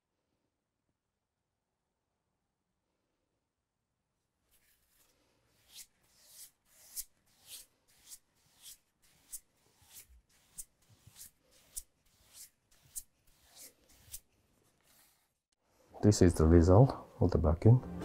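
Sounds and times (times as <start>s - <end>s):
brush sweeping over paper: 4.4s - 15.5s.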